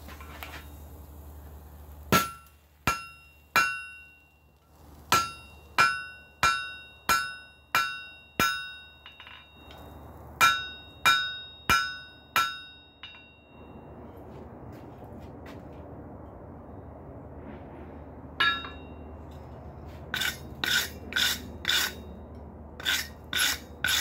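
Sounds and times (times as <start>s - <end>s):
steady rushing noise: 0.0s - 24.0s
hammer ringing on anvil: 2.2s - 4.4s, 5.1s - 13.9s, 18.4s - 19.0s.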